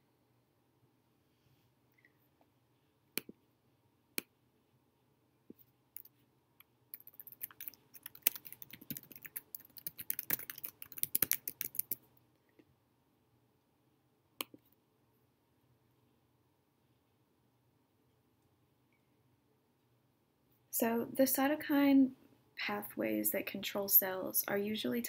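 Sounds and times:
typing on computer keyboard: 0:07.0 - 0:12.0.

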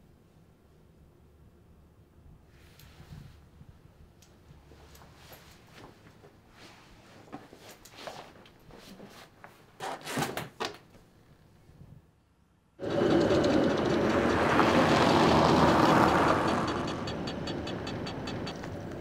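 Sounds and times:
vehicle passing in city traffic: 0:12.8 - 0:19.0.

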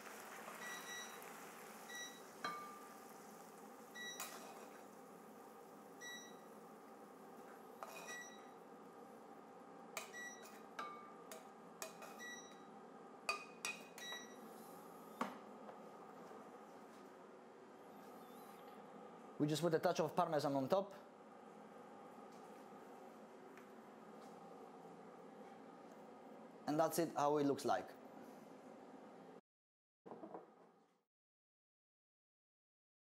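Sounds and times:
faint hum: 0:00.6 - 0:29.4.

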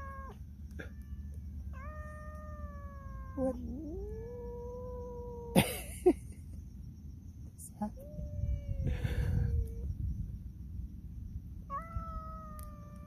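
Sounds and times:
cats yowling: 0:00.0 - 0:05.6, 0:08.0 - 0:09.8, 0:11.7 - 0:13.0.

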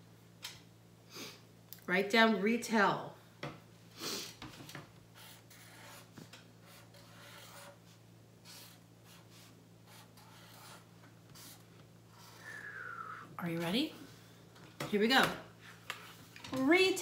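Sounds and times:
marker scratching on paper: 0:05.2 - 0:12.4.

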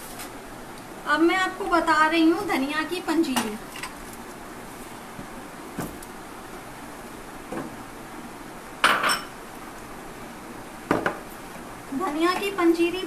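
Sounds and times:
glass bowls and platter clinking: 0:08.8 - 0:09.3.

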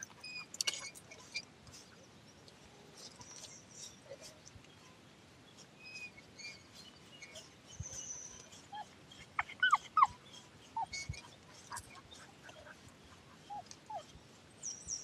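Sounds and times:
faint bird chirps: 0:00.0 - 0:15.0
dog whining: 0:09.4 - 0:10.1.

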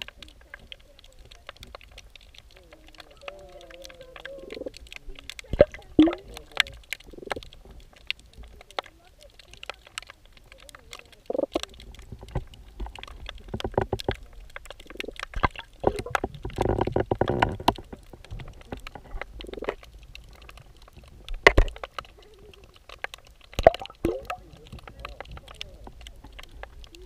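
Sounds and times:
underwater clicks and knocks: 0:00.0 - 0:27.0
water sloshing rumbles: 0:00.0 - 0:27.0.

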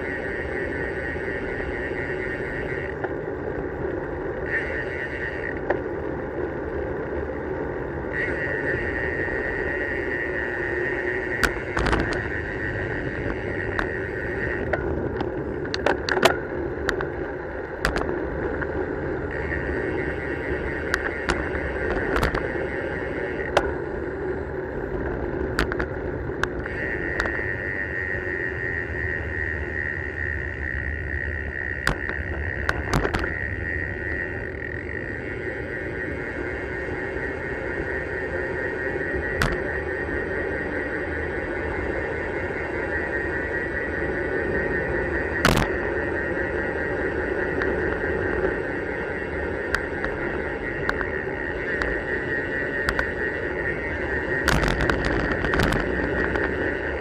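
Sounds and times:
bicycle tyres rolling on tarmac: 0:00.0 - 0:57.0
freewheel hub buzzing: 0:00.0 - 0:57.0
wind noise: 0:00.0 - 0:57.0
sharp clicks and knocks: 0:54.4 - 0:56.5.

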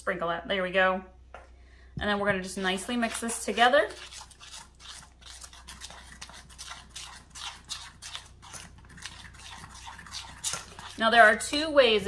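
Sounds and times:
spoon scraping metal bowl: 0:02.5 - 0:11.6.

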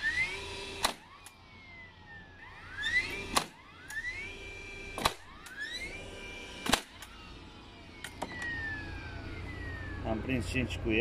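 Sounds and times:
nailer motor whine: 0:00.0 - 0:11.0
nail gun bang: 0:00.8 - 0:01.3, 0:03.1 - 0:04.0, 0:04.9 - 0:05.6, 0:06.6 - 0:07.1.

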